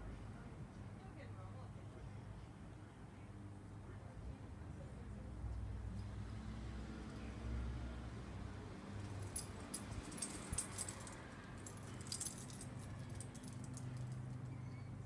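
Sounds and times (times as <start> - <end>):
light jingling clinks: 9.0 - 14.8.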